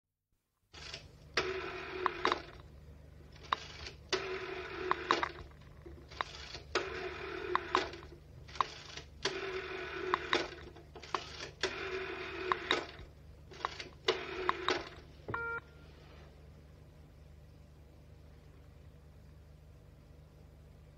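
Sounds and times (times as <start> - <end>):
rotary dial whirring and clicking: 0.7 - 2.7, 3.3 - 15.5
short telephone tone: 15.3 - 15.9.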